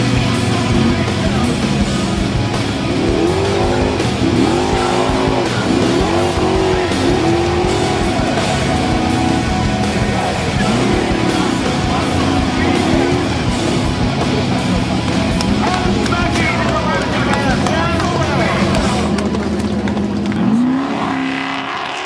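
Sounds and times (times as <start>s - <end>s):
buggy engine revving hard: 0.0s - 22.0s
music playing: 0.0s - 22.0s.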